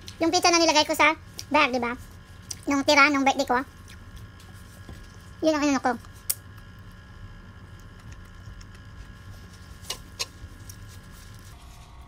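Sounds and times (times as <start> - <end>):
low room hum: 0.0 - 12.0
mouth click while eating: 6.2 - 6.4.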